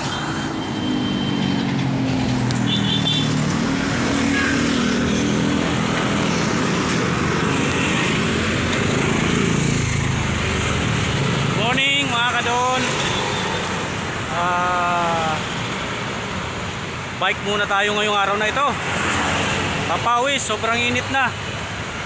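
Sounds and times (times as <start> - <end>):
motor vehicle engine hum: 0.0 - 11.6
passing vehicles rushing: 0.0 - 22.0.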